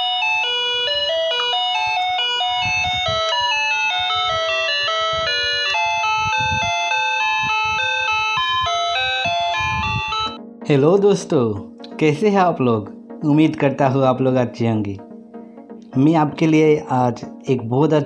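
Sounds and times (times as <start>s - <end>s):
electronic doorbell melody: 0.0s - 10.4s.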